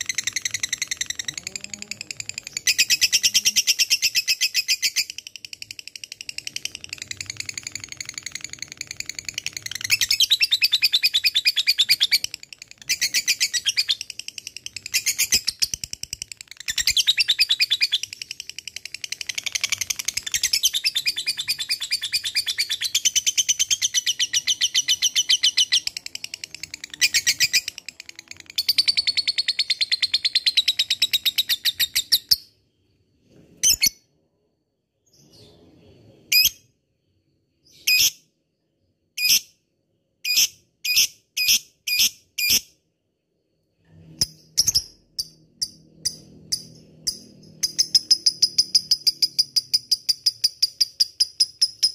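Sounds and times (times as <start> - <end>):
lovebird shrill chattering trill: 0.0 - 5.1
lovebird chirps: 0.0 - 34.2, 34.9 - 42.9, 43.5 - 51.9.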